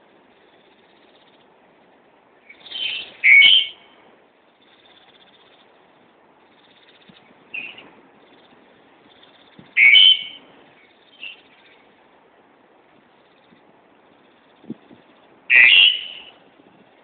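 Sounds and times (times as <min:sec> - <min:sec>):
bird calls: 0:02.4 - 0:11.9, 0:13.1 - 0:16.5.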